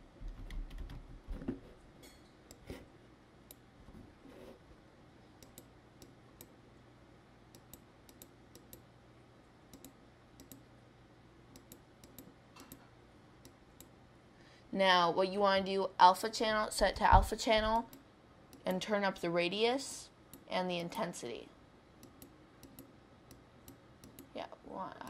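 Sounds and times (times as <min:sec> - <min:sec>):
low steady hum: 0:00.0 - 0:25.0
computer mouse clicks: 0:05.4 - 0:06.6, 0:07.5 - 0:08.9, 0:09.7 - 0:10.7, 0:11.5 - 0:12.8, 0:13.4 - 0:14.0, 0:22.0 - 0:24.3.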